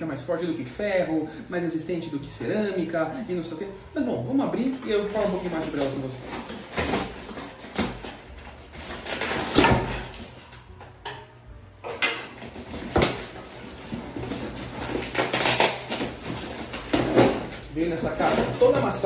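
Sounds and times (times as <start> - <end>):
cardboard box shifting: 5.0 - 10.5, 12.4 - 19.0
packing tape ripping: 5.0 - 10.7, 11.8 - 19.0.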